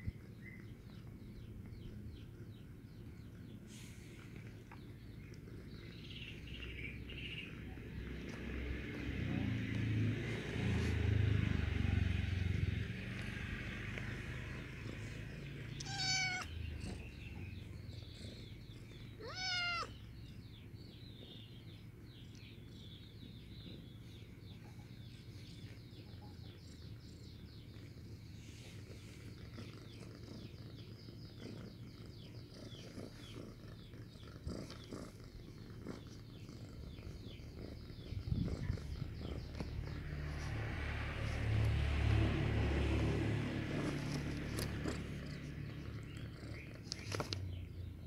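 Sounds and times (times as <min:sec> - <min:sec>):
cat meowing: 0:15.7 - 0:17.0, 0:19.1 - 0:20.0.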